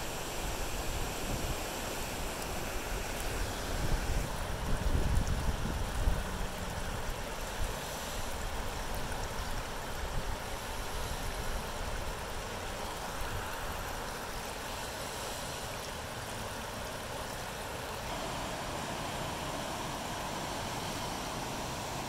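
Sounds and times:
water rushing in creek: 0.0 - 22.0
wind rumble on microphone: 3.3 - 10.4.

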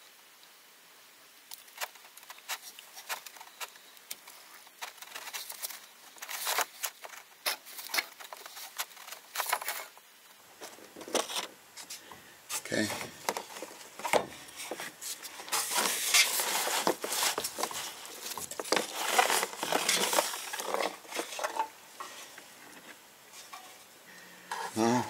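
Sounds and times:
hands rustling and scraping: 1.5 - 24.8.

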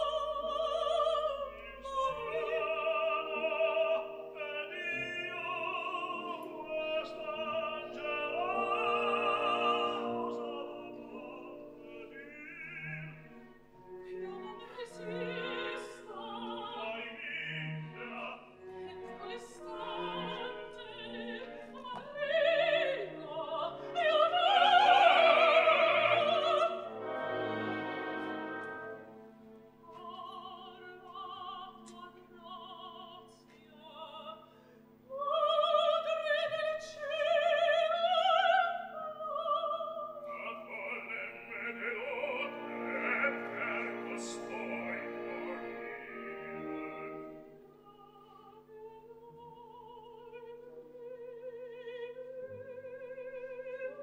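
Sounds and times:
orchestra playing: 0.0 - 31.3, 40.8 - 47.6
operatic singing: 0.0 - 34.5, 35.1 - 54.0.

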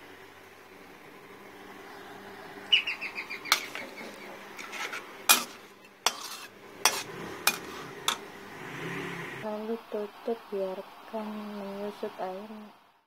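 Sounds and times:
metal spatula scraping wok: 3.5 - 8.3
sharp metal clanks: 5.3 - 8.3.

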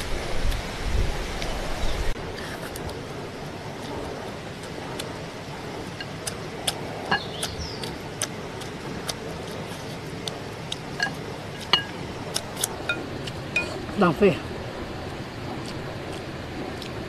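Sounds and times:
chopsticks clinking on ceramic bowls: 11.0 - 12.0, 13.6 - 13.9.

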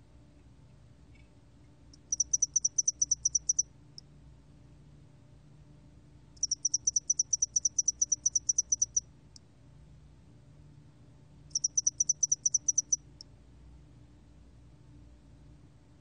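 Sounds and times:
cricket high-pitched pulses: 2.0 - 3.6, 6.4 - 9.0, 11.5 - 13.0.

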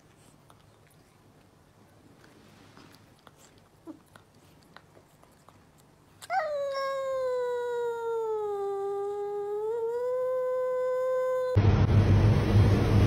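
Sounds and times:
cat yowling: 6.2 - 11.6.

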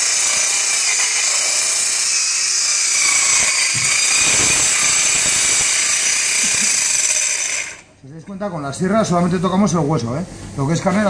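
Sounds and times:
electric bone saw cutting bone: 0.0 - 7.9.

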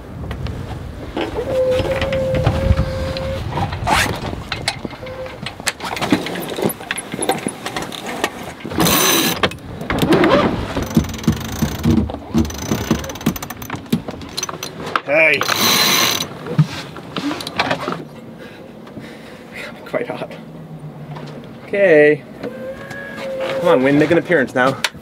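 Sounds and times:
wind buffeting microphone: 0.0 - 7.6
rigging clicks and knocks: 3.7 - 18.0.

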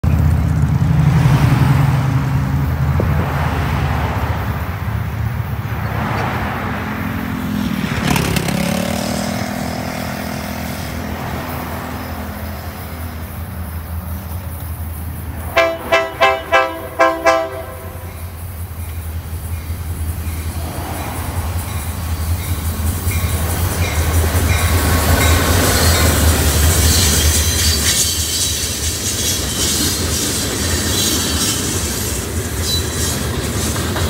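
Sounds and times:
road traffic passing: 0.0 - 34.0
locomotive air horn blasts: 15.5 - 18.3.

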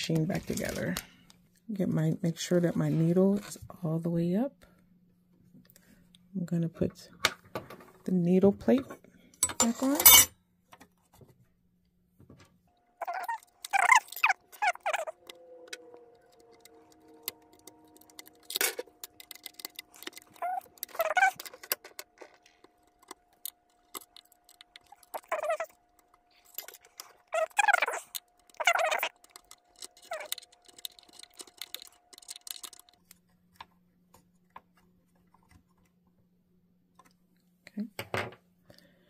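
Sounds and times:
metal parts clicking and clinking: 9.4 - 10.3, 13.0 - 33.2.

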